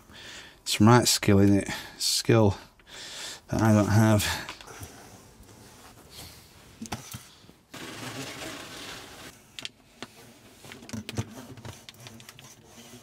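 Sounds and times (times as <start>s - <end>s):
vinyl film rustling: 7.7s - 13.0s.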